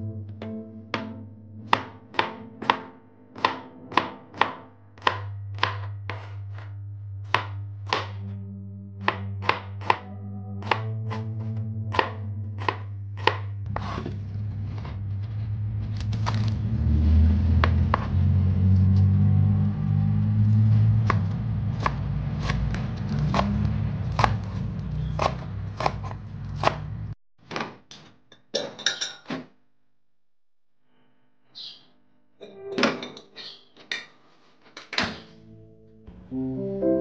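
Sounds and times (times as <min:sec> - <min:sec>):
knife chopping on plastic board: 0:01.0 - 0:08.3, 0:09.0 - 0:14.2, 0:21.8 - 0:28.1
steady low rumble: 0:11.6 - 0:27.2.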